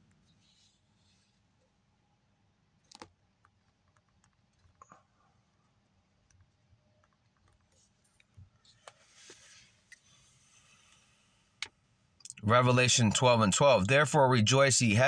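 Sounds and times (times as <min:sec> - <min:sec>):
typing on phone screen: 0:02.8 - 0:05.0.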